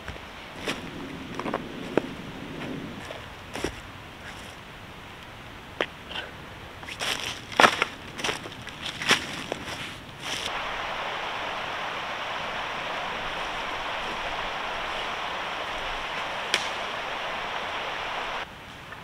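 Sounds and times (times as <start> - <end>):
steady rushing hiss: 0.0 - 19.0
dry branch snapping: 16.4 - 17.0.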